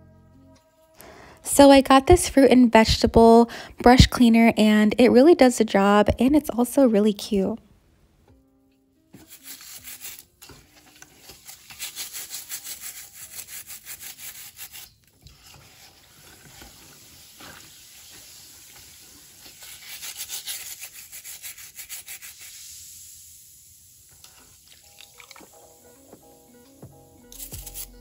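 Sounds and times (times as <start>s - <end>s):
brush scrubbing produce skin: 9.2s - 22.7s, 27.3s - 28.0s.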